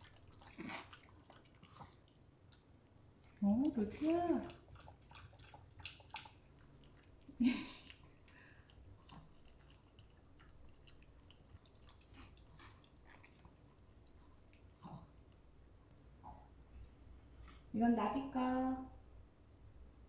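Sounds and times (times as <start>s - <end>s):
dogs lapping and eating: 0.0s - 15.3s.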